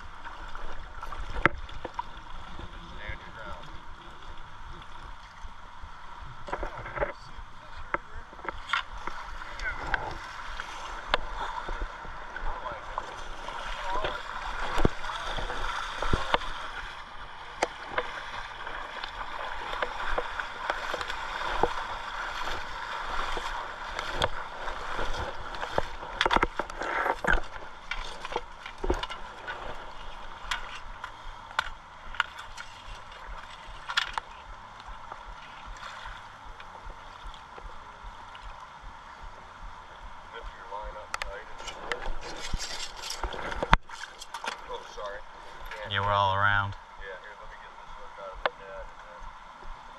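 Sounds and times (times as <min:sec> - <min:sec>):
river current splashing: 0:00.0 - 0:06.8, 0:07.4 - 0:48.3
fish knocking and splashing: 0:17.6 - 0:29.8.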